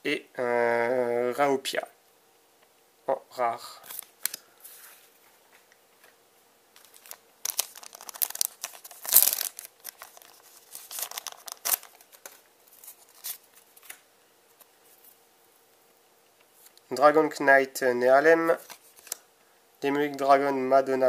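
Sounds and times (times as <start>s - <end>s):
foil wrapper crinkling and tearing: 6.8s - 14.0s.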